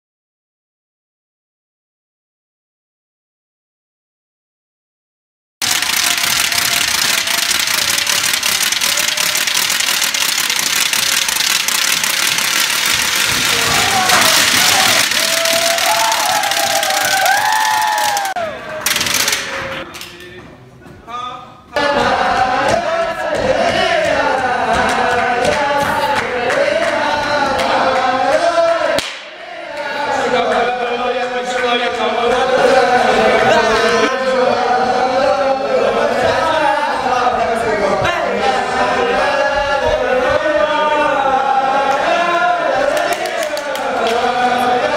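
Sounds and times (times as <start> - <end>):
ratchet noisemakers rattling: 5.6 - 17.8
men singing together: 21.8 - 44.9.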